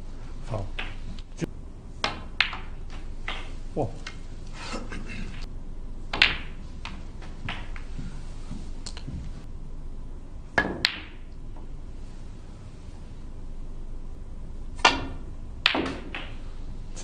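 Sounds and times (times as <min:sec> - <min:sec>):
snooker balls clicking: 0:00.4 - 0:04.6, 0:05.2 - 0:05.5, 0:06.1 - 0:09.5, 0:10.5 - 0:11.8, 0:14.7 - 0:17.0
cue striking ball: 0:00.6 - 0:01.4, 0:02.0 - 0:04.2, 0:06.1 - 0:08.1, 0:10.5 - 0:11.7, 0:14.8 - 0:16.5.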